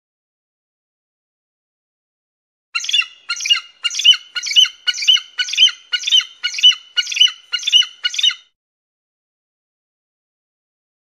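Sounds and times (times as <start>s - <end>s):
bald eagle chattering calls: 2.8s - 8.4s.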